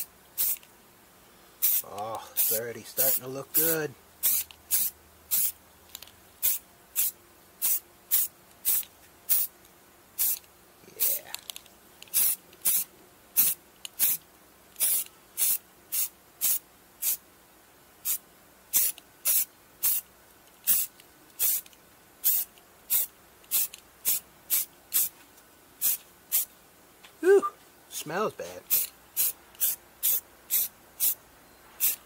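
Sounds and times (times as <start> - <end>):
spray can hissing: 0.4 - 0.6, 1.6 - 5.6, 6.4 - 9.5, 10.2 - 10.4, 12.1 - 14.2, 14.8 - 17.2, 18.0 - 20.0, 20.6 - 25.1, 25.8 - 26.5, 28.6 - 31.2, 31.8 - 32.0.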